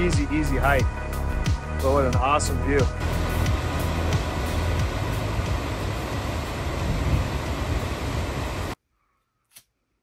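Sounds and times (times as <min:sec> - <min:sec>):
waterfall roaring: 0:03.0 - 0:08.8.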